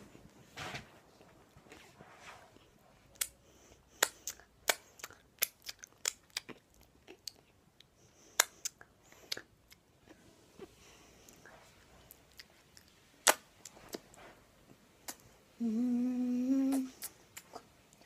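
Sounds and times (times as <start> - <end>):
wet lip smacks: 16.7 - 18.0.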